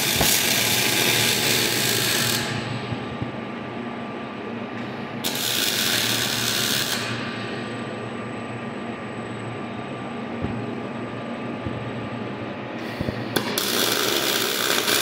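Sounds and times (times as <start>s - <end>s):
welding torch arc crackling: 0.0s - 2.7s, 5.2s - 7.2s, 13.1s - 15.0s
steady machine hum: 0.0s - 15.0s.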